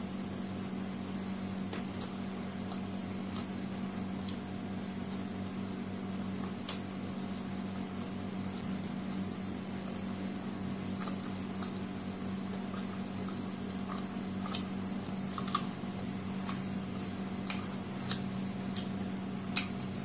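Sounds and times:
room hum: 0.0 - 20.0
chewing mouth clicks: 16.4 - 18.9.

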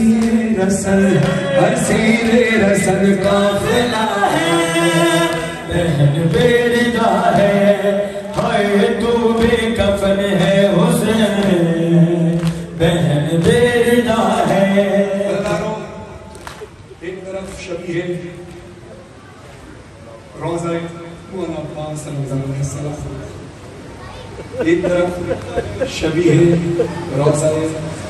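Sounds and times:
voices chanting a lament: 0.0 - 16.3
breaths: 8.1 - 8.3.

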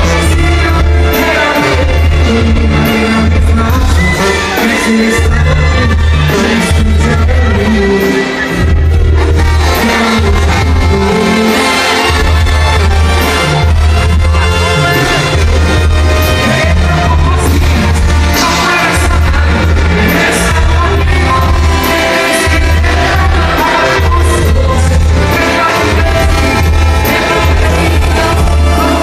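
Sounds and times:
brass and drums: 0.0 - 29.0
lead singer: 0.0 - 29.0
tuba bass line: 0.0 - 29.0.

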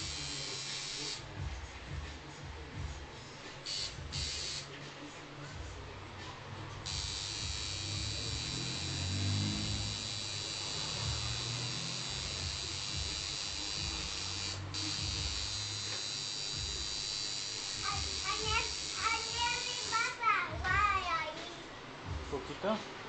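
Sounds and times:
tattoo machine buzzing: 0.0 - 1.2, 3.6 - 4.7, 6.8 - 20.2.

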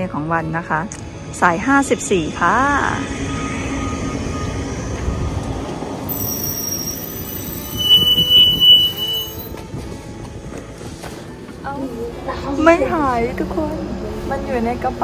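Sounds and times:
high brake squeal: 6.1 - 9.5.

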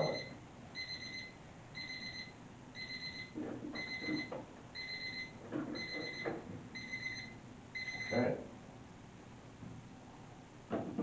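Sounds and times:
timer alarm beeping: 0.0 - 8.2.

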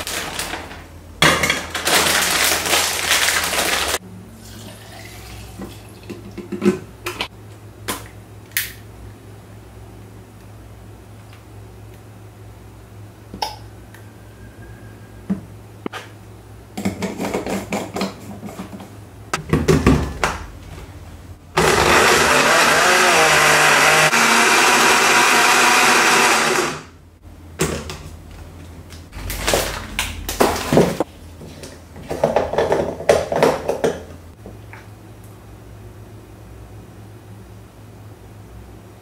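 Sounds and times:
blender running: 2.0 - 4.0, 21.6 - 27.0.

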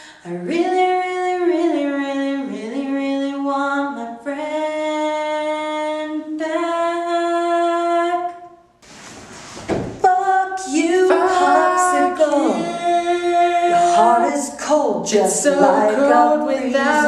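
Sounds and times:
man singing off-key: 10.8 - 14.3.

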